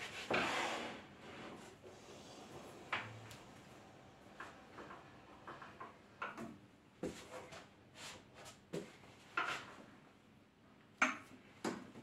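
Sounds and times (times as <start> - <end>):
sharp clicks and knocks on wood lathe: 4.4 - 6.5.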